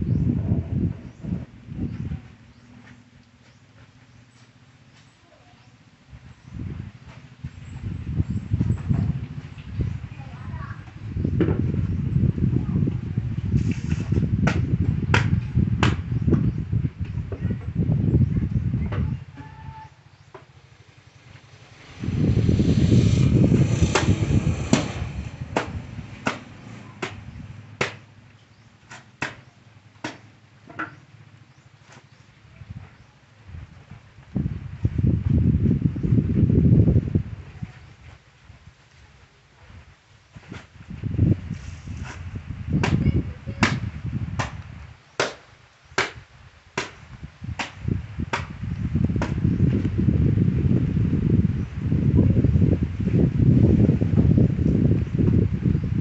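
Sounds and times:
loud low rubbing noise: 10.9s - 15.6s, 21.1s - 27.8s, 40.7s - 44.0s.

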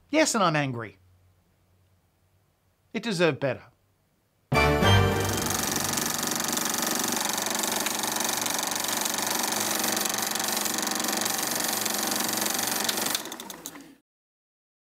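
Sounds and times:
film projector clatter: 5.2s - 13.9s.

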